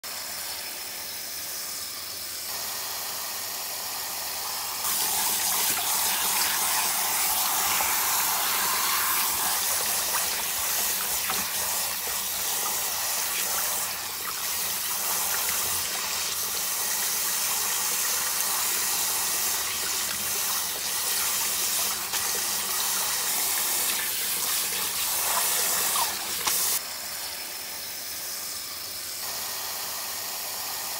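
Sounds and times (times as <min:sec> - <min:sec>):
tap water splashing on vegetables: 0:04.8 - 0:26.8.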